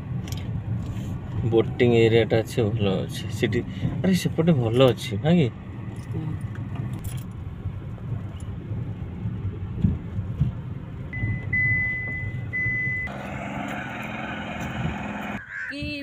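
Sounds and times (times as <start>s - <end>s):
road and engine rumble in car: 0.0s - 16.0s
steady high beep: 11.2s - 13.1s.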